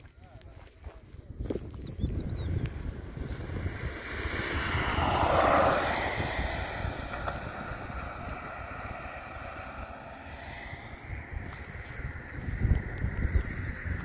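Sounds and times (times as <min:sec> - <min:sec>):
wind rumbling on microphone: 0:00.0 - 0:14.0
car passing by: 0:02.9 - 0:14.0.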